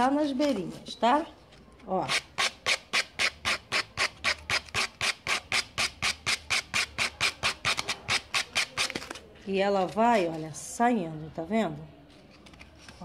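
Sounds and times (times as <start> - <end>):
sandpaper scraping back and forth: 2.1 - 9.1.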